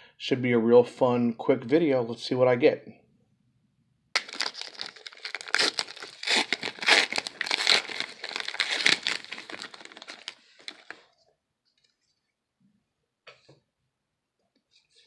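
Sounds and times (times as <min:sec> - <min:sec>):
card pack wrapper tearing: 0:04.2 - 0:11.1.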